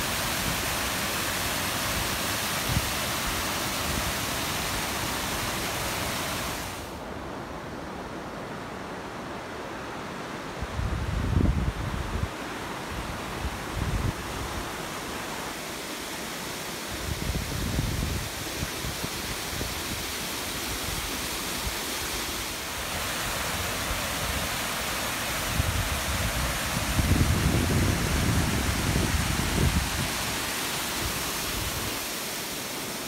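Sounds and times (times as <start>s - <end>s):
stream running over a weir: 0.0s - 33.0s
wind gusts on microphone: 10.5s - 15.0s, 16.9s - 32.1s.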